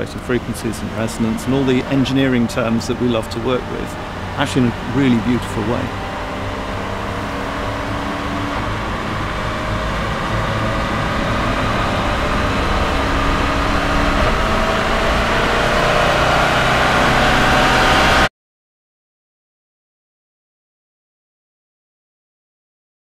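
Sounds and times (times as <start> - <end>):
car engine and exhaust at speed: 0.0 - 18.3.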